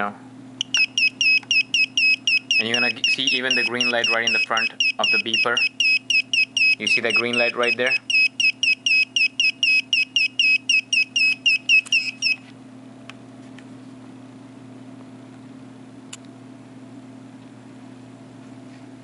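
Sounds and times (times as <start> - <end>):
low steady hum: 0.0 - 19.0
electronic tester beeping: 0.6 - 12.4.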